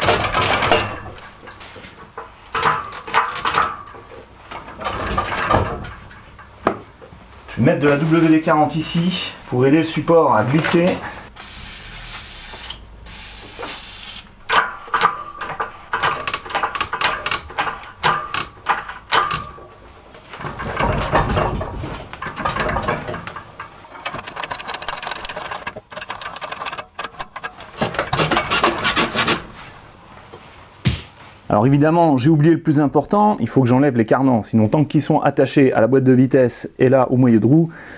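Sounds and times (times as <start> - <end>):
chains clicking and rattling: 22.3 - 27.0.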